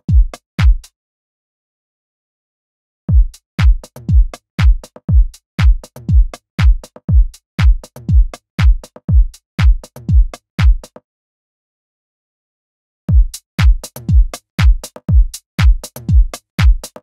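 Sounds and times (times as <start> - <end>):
electronic drum-machine beat: 13.1 - 17.0.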